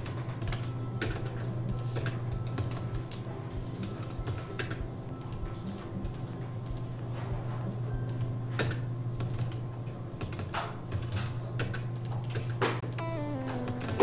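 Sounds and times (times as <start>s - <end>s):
steady low hum: 0.0s - 14.0s
keyboard and mouse clicks: 3.8s - 6.9s.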